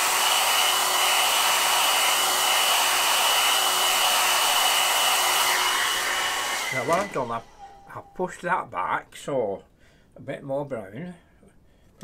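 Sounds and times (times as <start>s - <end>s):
hair dryer blowing: 0.0s - 7.7s.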